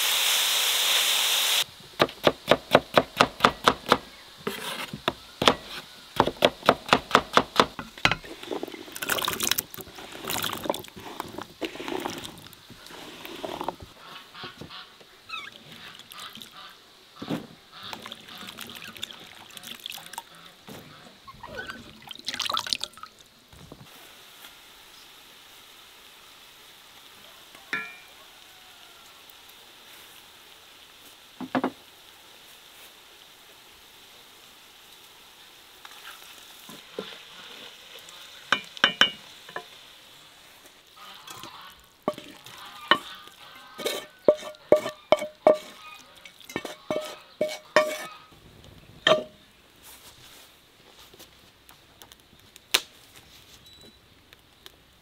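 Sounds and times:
knife chopping on wooden board: 2.0s - 7.8s
water splashing in bowl: 8.1s - 13.6s, 15.5s - 16.6s, 17.8s - 20.4s, 21.4s - 23.3s, 41.0s - 48.0s.

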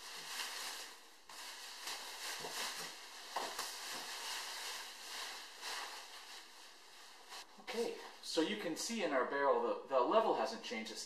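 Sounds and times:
plastic bags crinkling: 0.0s - 7.5s.

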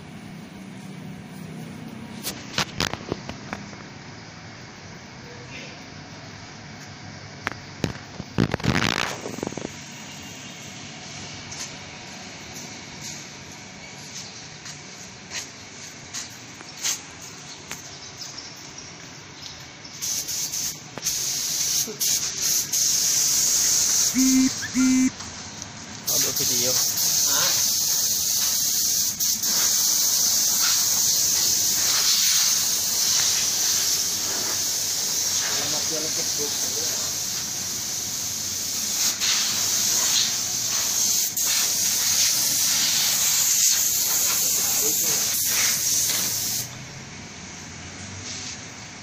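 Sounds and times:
compressed air hissing from spray gun: 20.0s - 24.1s, 26.1s - 46.7s
short low beep: 24.2s - 25.1s.

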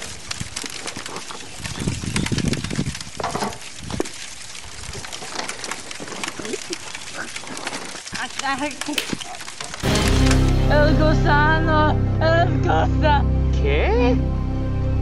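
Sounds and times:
people wrestling on dry leaves: 0.0s - 10.5s
low rumble: 9.8s - 14.1s.

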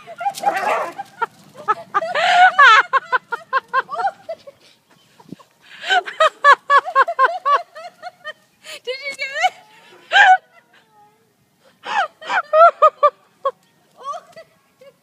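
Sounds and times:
hysterical laughter: 0.0s - 8.4s, 11.8s - 13.6s.

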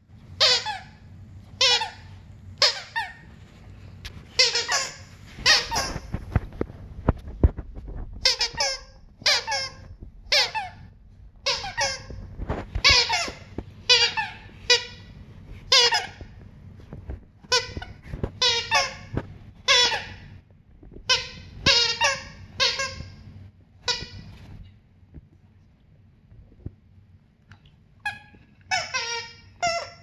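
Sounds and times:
squeaky toy squeaking: 0.4s - 3.3s, 4.3s - 6.2s, 8.2s - 12.2s, 12.8s - 15.1s, 15.7s - 16.3s, 17.5s - 20.3s, 21.1s - 23.2s, 23.8s - 24.4s, 28.0s - 30.0s.

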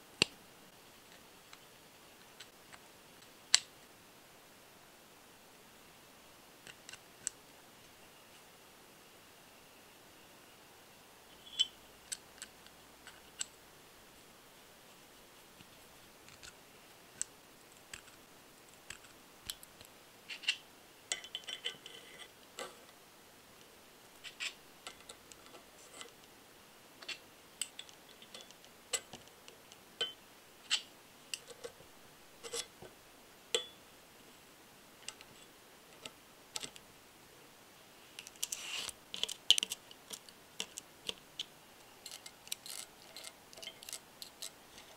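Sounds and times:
metallic ring: 33.6s - 33.8s
small metal parts clicking: 38.2s - 44.9s.

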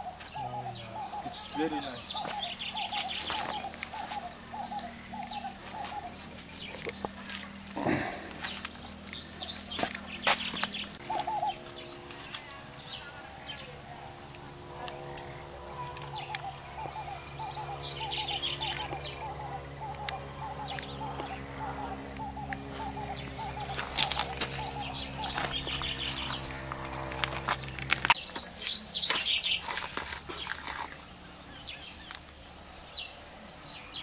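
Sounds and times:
bird hooting note: 0.0s - 9.9s, 10.9s - 27.4s
birds chirping: 0.0s - 34.0s
insect buzz: 0.0s - 34.0s.

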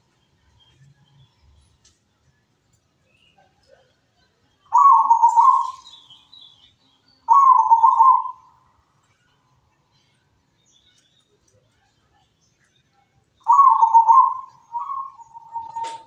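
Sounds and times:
small bird chirping: 4.6s - 16.0s
dove cooing: 4.7s - 5.9s, 7.3s - 8.5s, 13.5s - 16.0s.

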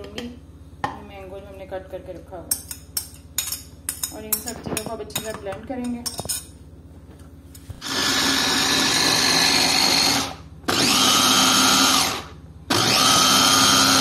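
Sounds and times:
electric chopper motor: 7.8s - 14.0s.

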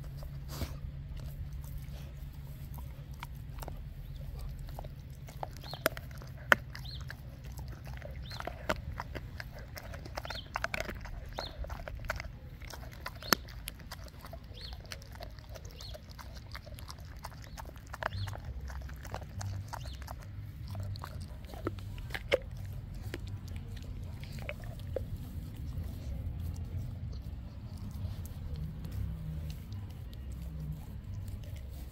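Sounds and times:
dog chewing meat: 0.0s - 31.9s
bone cracking: 2.8s - 25.8s.

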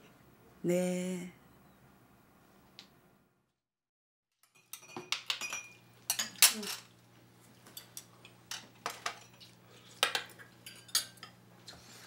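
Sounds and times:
utensils clinking on dishes: 4.4s - 7.0s, 7.6s - 11.4s.

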